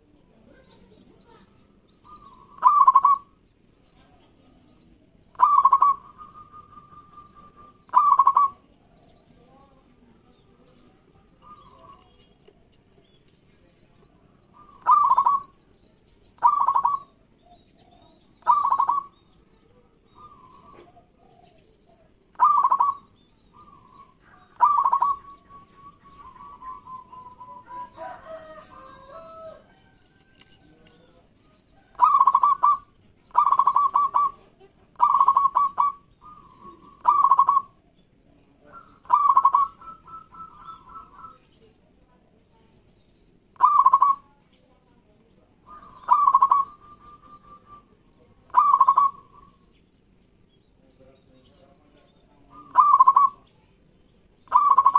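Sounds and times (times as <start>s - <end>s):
quiet wavering bird calls: 0.0s - 54.9s
dove cooing: 2.0s - 3.4s, 5.3s - 8.7s, 11.3s - 12.1s, 14.5s - 15.6s, 16.4s - 19.2s, 19.9s - 31.2s, 31.8s - 37.9s, 38.6s - 41.7s, 43.6s - 44.3s, 45.6s - 49.7s, 52.4s - 53.5s, 54.5s - 54.9s.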